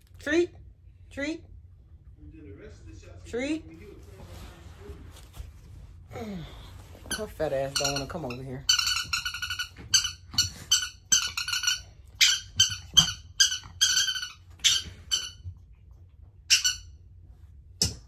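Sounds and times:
squeaky dog toy squeaking: 7.1 - 15.5, 16.5 - 17.0.

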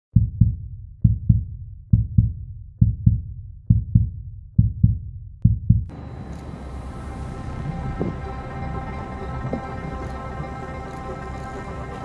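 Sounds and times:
heartbeat thumps: 0.2 - 5.9, 7.9 - 8.3.

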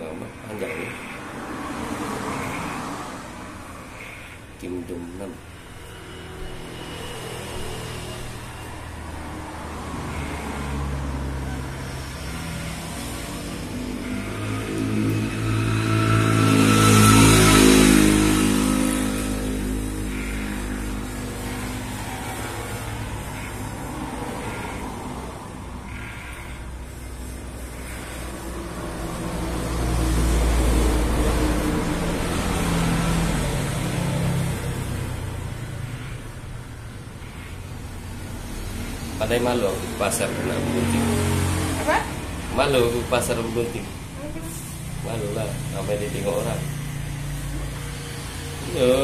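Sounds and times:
electric hair clipper buzzing: 6.0 - 25.2.

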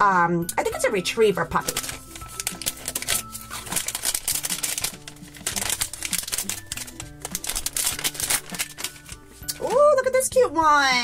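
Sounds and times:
background music with held notes: 0.0 - 11.0
plastic packet crinkling and tearing: 1.3 - 10.0.

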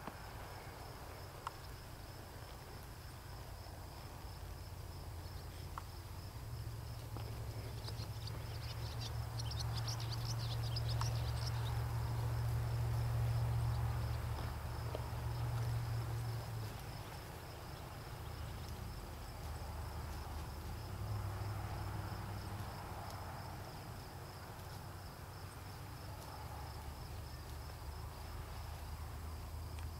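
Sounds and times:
insects trilling: 0.1 - 29.9
low steady rumble: 1.9 - 24.3.

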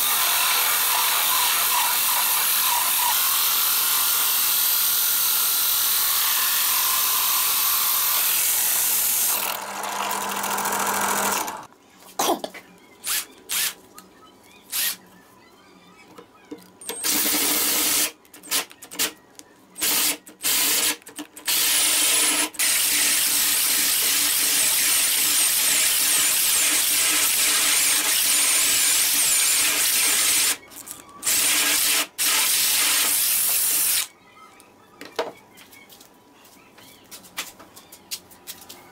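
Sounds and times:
electric drill cutting plywood: 0.0 - 11.7, 19.8 - 30.6, 31.2 - 34.1.

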